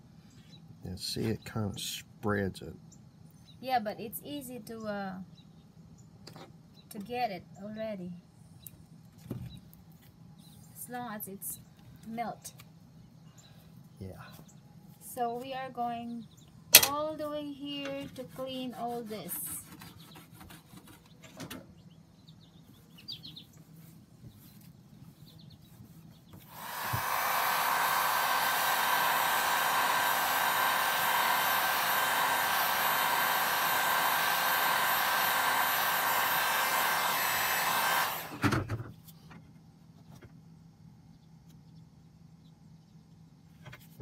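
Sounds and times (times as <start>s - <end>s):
heat gun blowing air: 26.4s - 38.6s
heat gun switching off knock: 26.4s - 38.8s.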